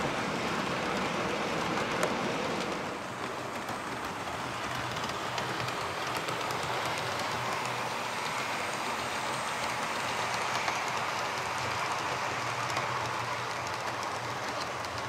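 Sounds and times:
model train motors whirring: 0.0 - 15.0
wheels clicking over rail joints: 9.3 - 15.0.

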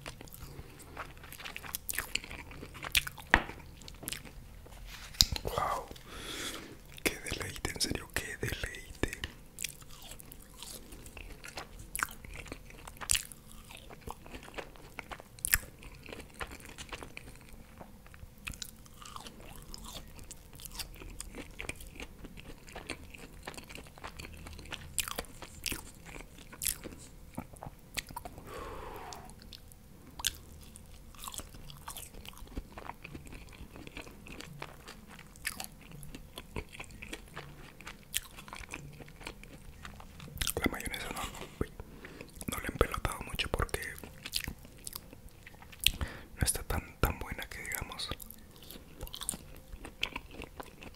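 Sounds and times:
chewing crunchy food: 0.0 - 50.9.

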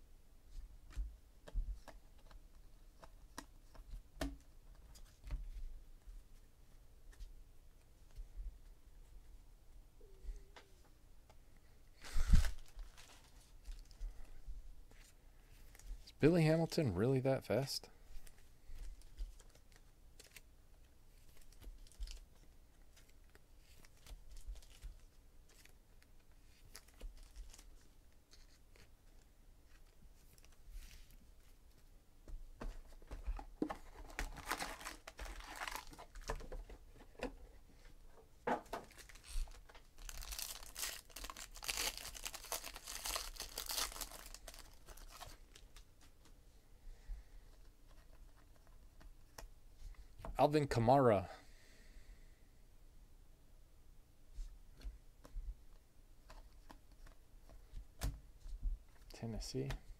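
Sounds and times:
wrappers tearing and crinkling: 12.0 - 14.0, 34.0 - 36.3, 38.8 - 45.9.

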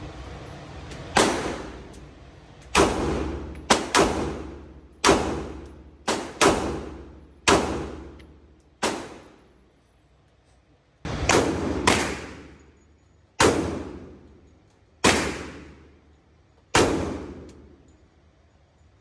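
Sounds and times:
gunshots with echo: 1.1 - 1.9, 11.1 - 12.7, 13.4 - 14.2, 15.0 - 15.9.

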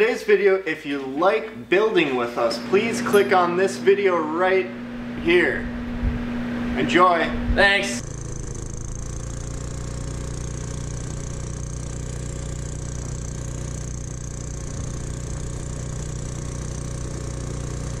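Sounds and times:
go-kart engine running: 8.0 - 18.0.

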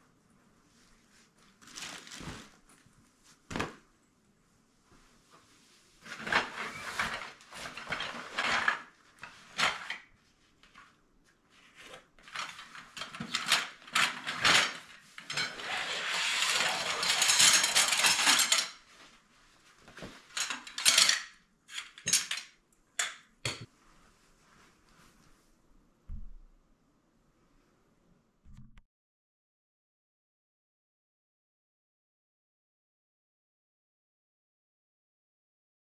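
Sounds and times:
canvas rustling: 0.7 - 3.9.

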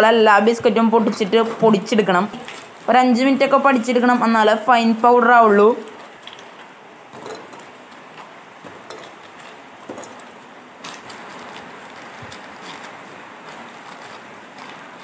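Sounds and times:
biscuits cracking: 5.8 - 15.0.

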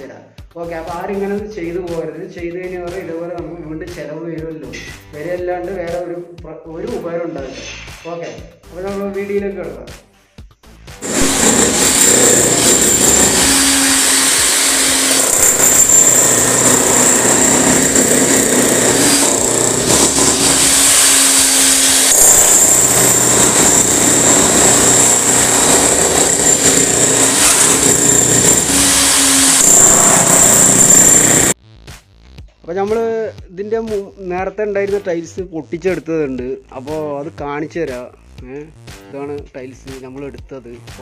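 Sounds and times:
demolition hammer chiselling tiles: 11.0 - 31.6.

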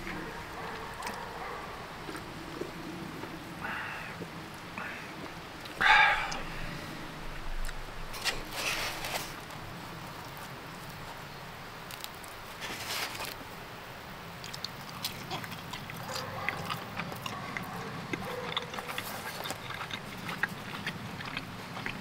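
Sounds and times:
biting and chewing pizza: 0.0 - 4.4, 11.8 - 13.5, 14.4 - 22.0
small chewing clicks: 0.0 - 6.6, 14.4 - 22.0.

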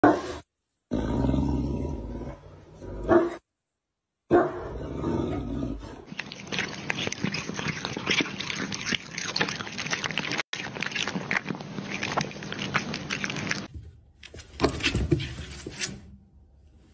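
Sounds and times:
cat lapping milk: 6.1 - 13.7.

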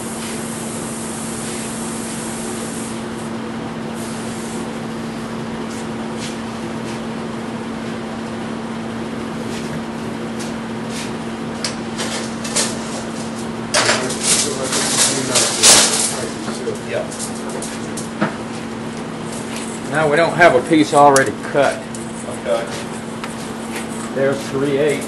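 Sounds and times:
torch flame hissing: 0.0 - 3.0.

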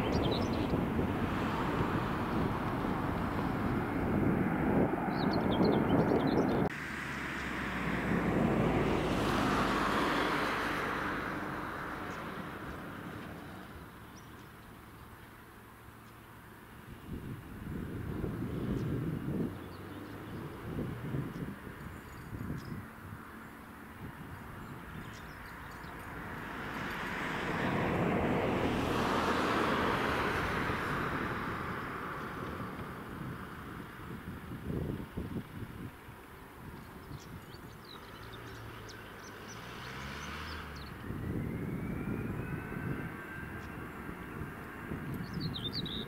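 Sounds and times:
jet engine rushing: 0.0 - 13.2, 40.9 - 45.9.

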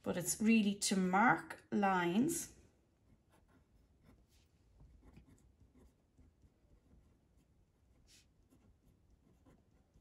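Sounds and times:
pen scratching on paper: 3.0 - 10.0.

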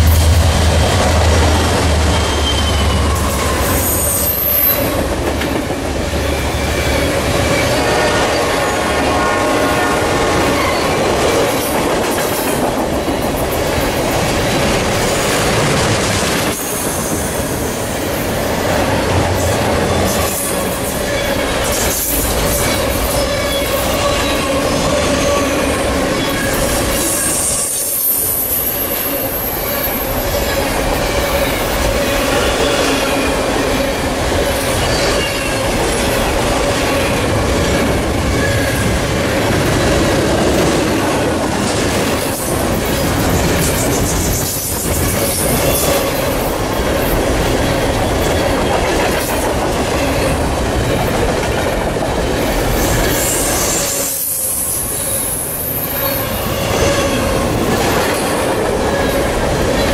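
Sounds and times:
freight train wheels rumbling on rail: 0.0 - 59.9
high-pitched wheel squeal: 2.0 - 5.0.

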